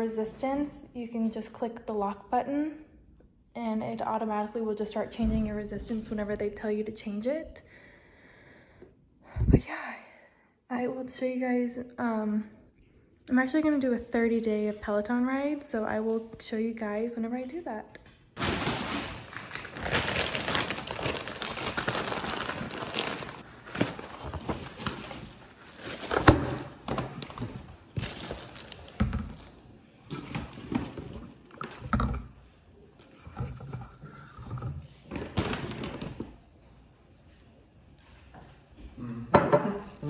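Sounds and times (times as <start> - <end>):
plastic bags crinkling: 18.4 - 29.6.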